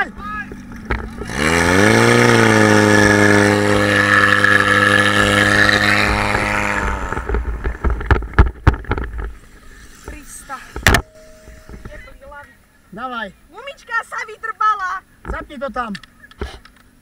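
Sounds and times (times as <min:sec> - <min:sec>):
pump engine running at high speed: 0:00.5 - 0:07.6
water spraying from hoses: 0:01.1 - 0:08.0.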